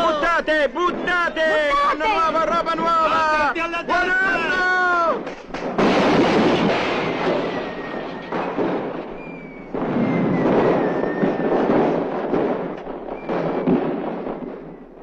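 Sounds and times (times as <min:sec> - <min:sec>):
firecrackers crackling and banging: 0:00.0 - 0:15.0
faint high whistles: 0:09.2 - 0:11.5.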